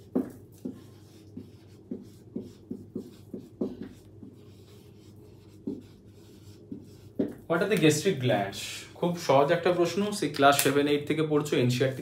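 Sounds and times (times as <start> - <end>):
marker pen writing on whiteboard: 0.0 - 8.1.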